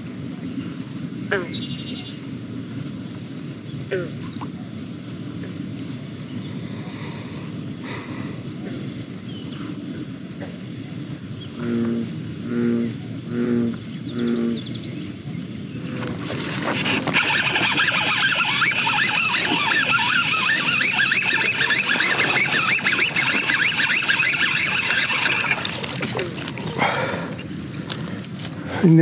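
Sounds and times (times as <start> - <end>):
high insect trill: 0.0 - 29.0
bullfrog calling: 1.2 - 2.8, 3.8 - 5.6, 6.3 - 15.2, 16.2 - 29.0
loud noise: 16.3 - 27.4.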